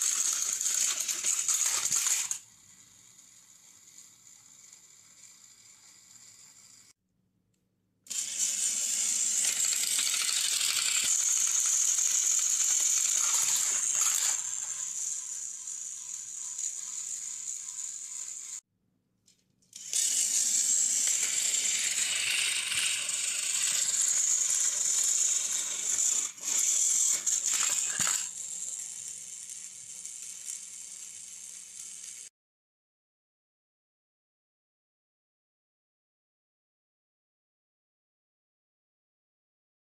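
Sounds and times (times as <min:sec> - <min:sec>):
toy train motor whine: 0:00.0 - 0:07.0, 0:08.1 - 0:18.6, 0:19.7 - 0:32.3.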